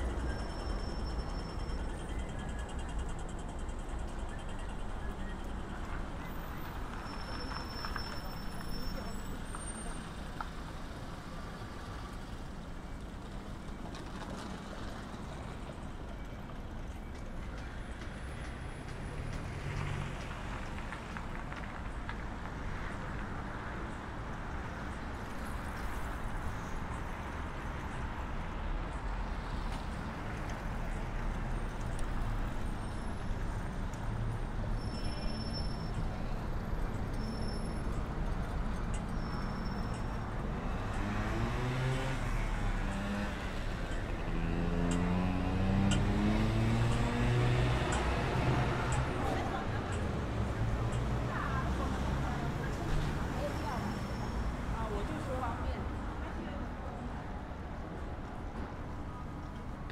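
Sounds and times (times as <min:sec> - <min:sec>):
passing cars: 0:00.0 - 0:59.9
vehicle engine accelerating: 0:40.7 - 0:49.4.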